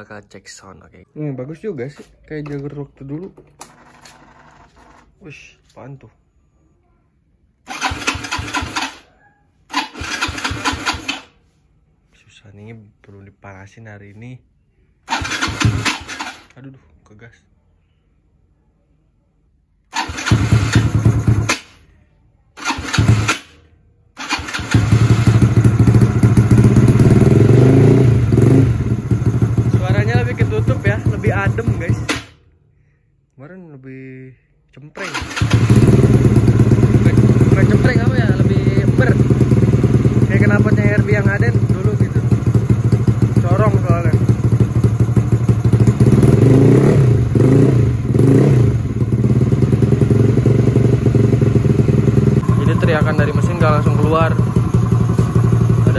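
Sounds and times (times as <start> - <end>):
scooter engine starting and idling: 7.6 - 11.5, 15.1 - 16.6, 19.9 - 21.9, 22.6 - 32.4, 35.0 - 55.9.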